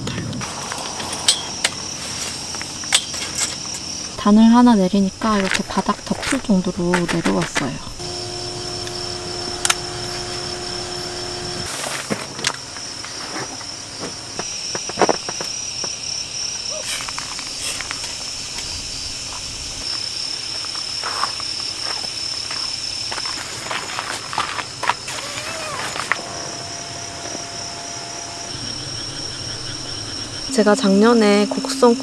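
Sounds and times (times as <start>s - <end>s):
night insects chirping: 0.0s - 32.0s
footsteps on gravel: 5.2s - 8.0s, 13.1s - 16.0s, 19.2s - 25.1s.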